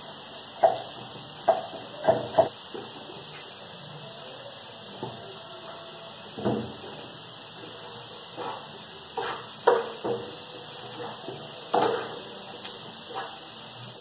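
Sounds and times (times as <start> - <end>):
steady frying hiss: 0.0 - 14.0
board and spatula knocking pan: 0.6 - 2.8, 9.2 - 12.2.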